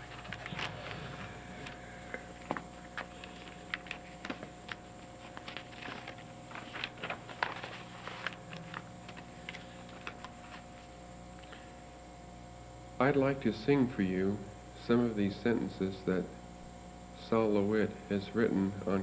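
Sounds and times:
papers rustling: 0.0s - 10.9s
electrical hum: 0.0s - 19.0s.

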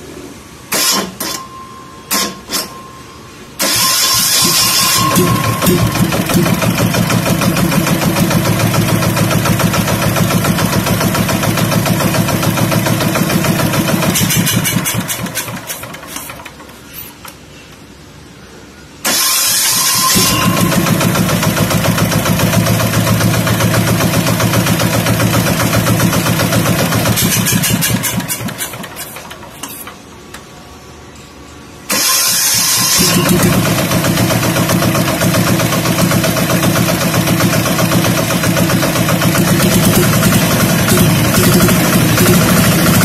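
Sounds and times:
diesel boat engine running: 3.6s - 15.6s, 20.0s - 28.9s, 32.6s - 43.0s.

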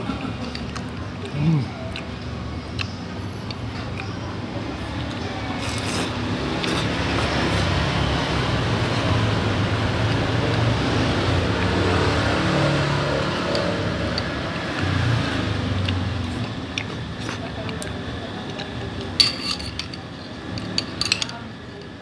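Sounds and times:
vehicle engine passing: 6.3s - 16.6s
spoon clinking on bowl: 19.2s - 20.0s.

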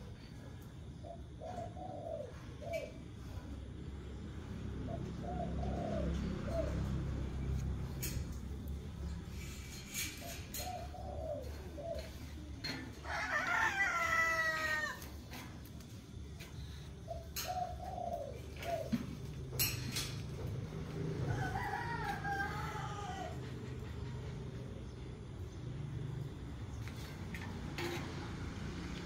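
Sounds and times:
rooster crowing: 12.9s - 15.2s, 20.9s - 23.7s.

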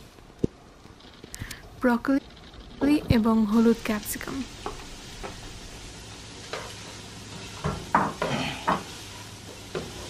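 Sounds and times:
vegetables sizzling in pan: 1.0s - 10.0s
spatula scraping and knocking pan: 6.4s - 10.0s.

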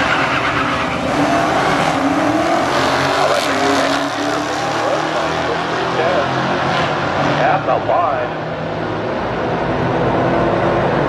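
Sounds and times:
cars accelerating at full throttle: 0.0s - 11.0s.

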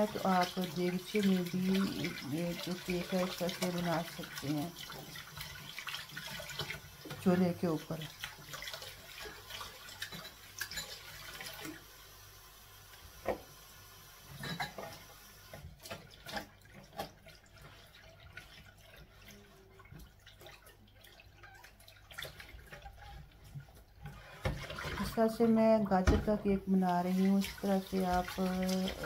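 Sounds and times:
water splashing: 0.0s - 11.8s, 15.6s - 25.4s, 26.2s - 29.0s
tap water running: 0.0s - 29.0s
dishes knocking and clinking: 14.4s - 15.0s.

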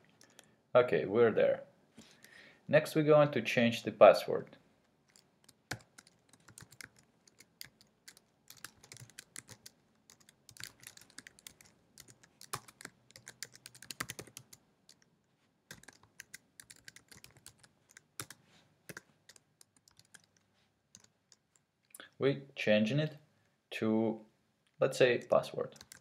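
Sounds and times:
typing on computer keyboard: 5.1s - 15.1s, 15.7s - 21.5s, 25.2s - 26.0s.

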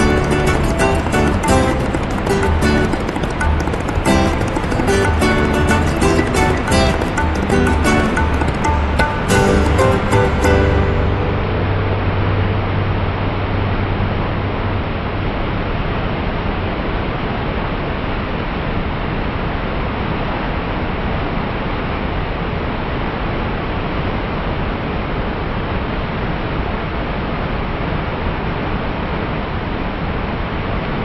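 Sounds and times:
waterfall rushing: 0.0s - 18.6s.

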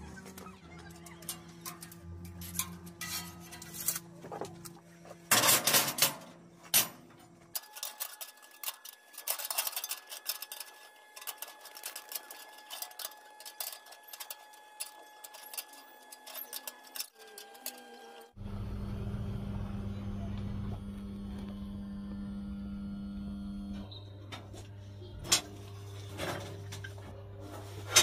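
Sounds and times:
low hum: 18.4s - 28.0s.

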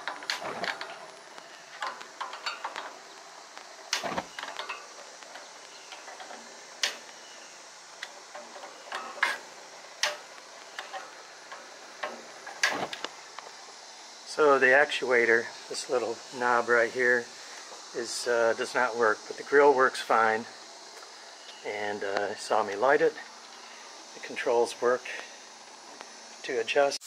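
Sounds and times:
lighter clicking at grill burners: 0.0s - 14.2s.

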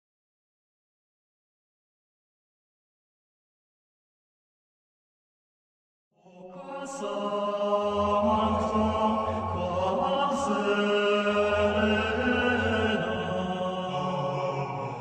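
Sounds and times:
chant-like held notes: 6.3s - 15.0s
deep drone: 7.6s - 15.0s.

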